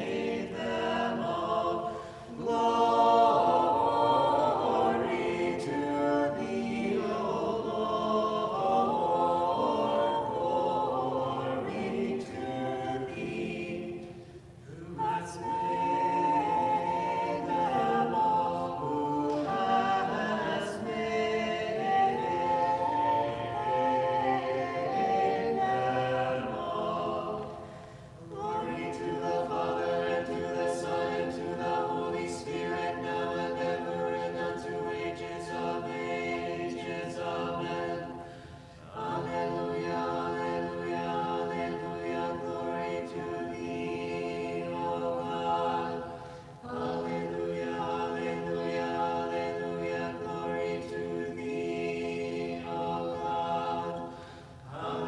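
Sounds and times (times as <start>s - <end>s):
choir singing a cappella: 0.0s - 55.0s
singers breathing: 1.8s - 2.4s, 27.6s - 28.2s, 38.2s - 38.9s, 46.1s - 46.6s, 54.0s - 54.7s.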